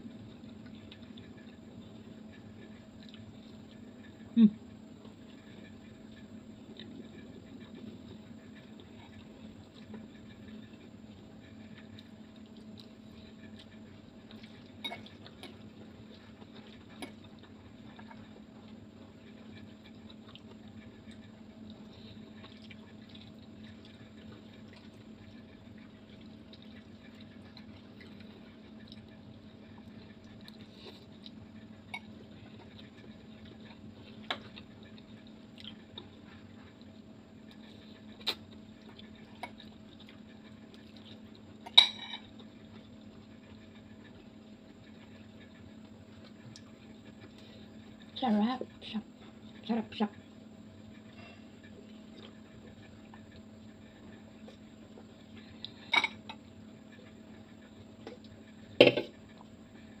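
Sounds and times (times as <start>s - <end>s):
steady low hum: 0.0s - 60.0s
wet chewing and slurping: 5.0s - 48.1s
drink can set down on table: 58.8s - 59.1s.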